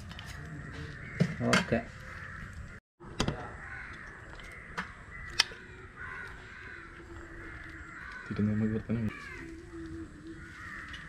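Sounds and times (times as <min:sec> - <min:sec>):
crows cawing: 0:00.1 - 0:02.8, 0:03.4 - 0:11.0
sharp clicks: 0:04.8 - 0:05.6.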